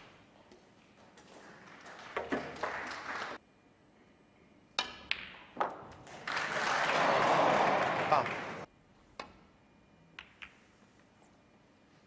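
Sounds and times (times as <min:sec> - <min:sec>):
snooker balls clicking: 0:10.2 - 0:10.7.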